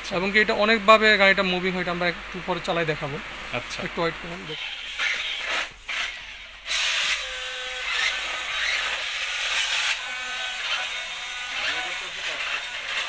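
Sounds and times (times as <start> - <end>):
toy car electric motors whirring: 4.4 - 13.0.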